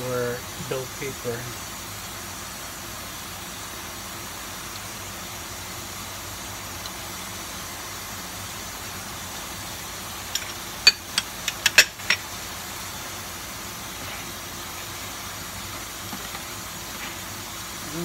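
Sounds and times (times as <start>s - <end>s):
vegetables and chicken sizzling in pan: 0.0s - 18.0s
kitchenware clinking: 10.3s - 12.3s.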